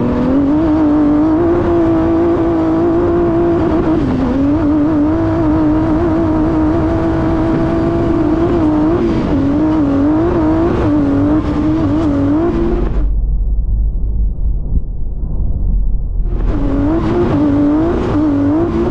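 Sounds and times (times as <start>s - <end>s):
truck engine revving hard: 0.0s - 13.1s, 16.2s - 18.9s
low rumble: 11.2s - 18.9s.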